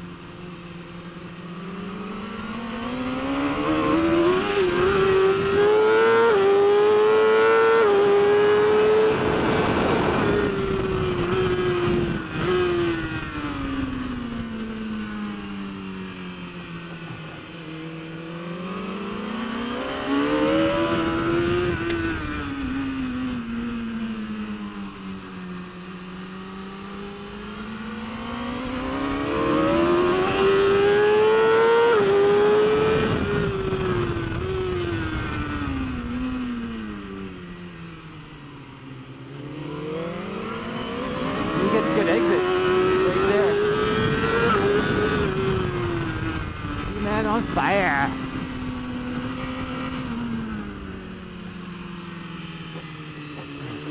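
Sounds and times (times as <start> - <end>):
motorcycle engine revving: 0.0 - 53.9.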